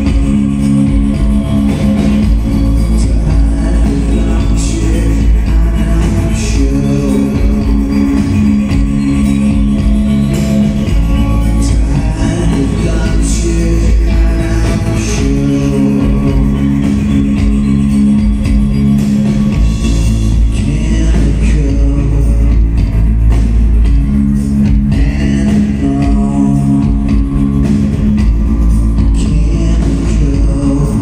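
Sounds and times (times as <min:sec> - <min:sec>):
person singing: 0:00.0 - 0:09.9, 0:10.8 - 0:17.8, 0:20.4 - 0:22.8, 0:24.9 - 0:27.6, 0:29.0 - 0:31.0
bass guitar: 0:00.0 - 0:31.0
drum kit: 0:00.0 - 0:31.0
electric guitars: 0:00.0 - 0:31.0.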